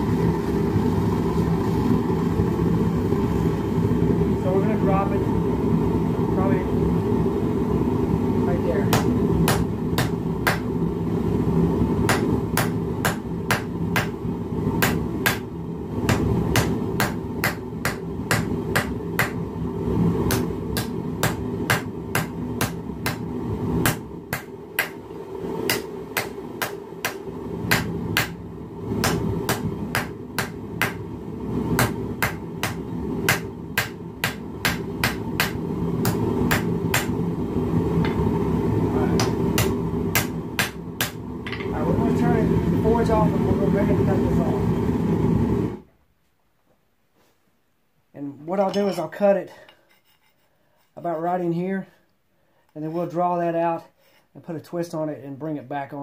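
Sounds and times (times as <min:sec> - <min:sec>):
hammer striking hot steel: 0:08.8 - 0:10.8, 0:12.0 - 0:14.2, 0:14.8 - 0:19.4, 0:20.2 - 0:25.0, 0:25.6 - 0:28.4, 0:29.0 - 0:31.1, 0:31.7 - 0:37.2, 0:39.1 - 0:41.8.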